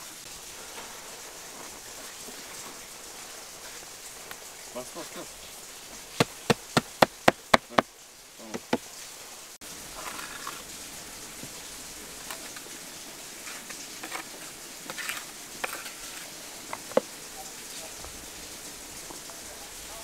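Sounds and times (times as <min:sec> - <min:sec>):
steady outdoor hiss: 0:00.0 - 0:20.0
sharp taps on brick: 0:06.2 - 0:07.8, 0:08.5 - 0:08.8.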